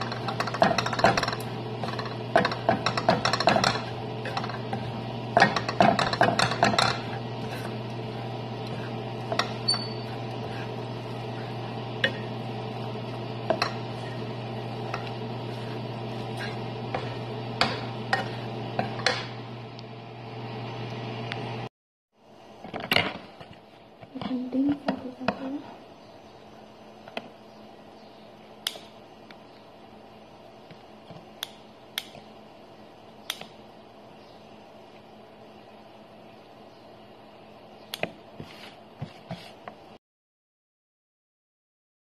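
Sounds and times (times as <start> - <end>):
wooden spatula scraping a pan: 0.0 - 19.2, 38.4 - 39.7
low hum: 0.0 - 21.7.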